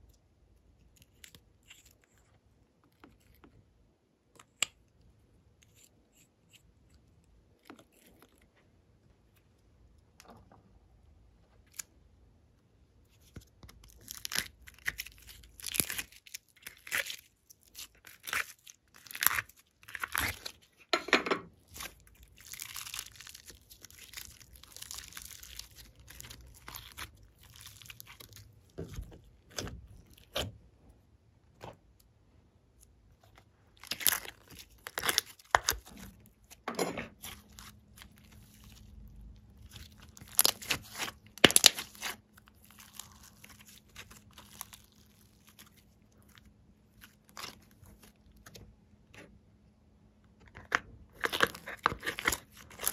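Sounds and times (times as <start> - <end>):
slime crackling and popping: 21.7 - 30.5, 33.8 - 48.6, 51.2 - 52.9.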